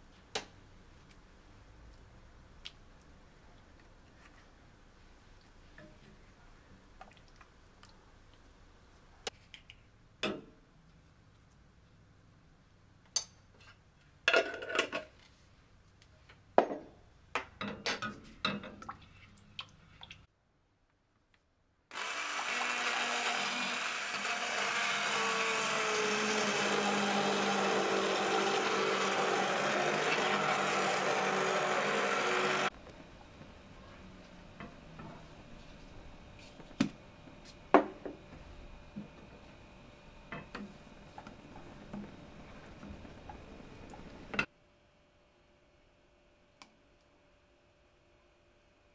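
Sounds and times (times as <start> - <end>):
stick blender running: 21.9 - 32.7.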